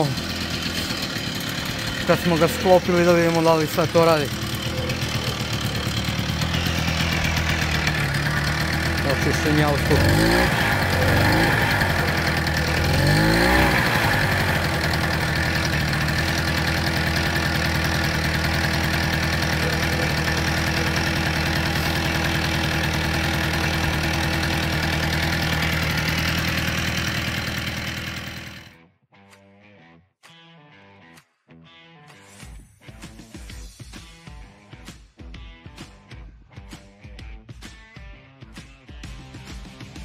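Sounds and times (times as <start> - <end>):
two-stroke moped engine idling: 0.0 - 28.8.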